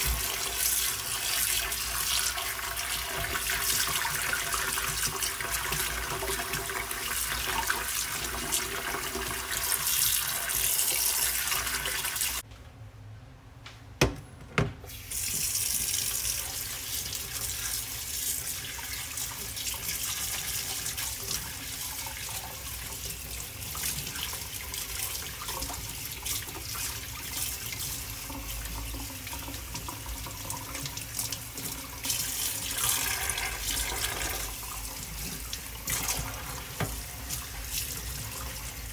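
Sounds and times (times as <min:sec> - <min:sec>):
food rinsed and rubbed by hand: 0:00.0 - 0:12.4, 0:14.9 - 0:38.9
tap running into steel sink: 0:36.1 - 0:37.1.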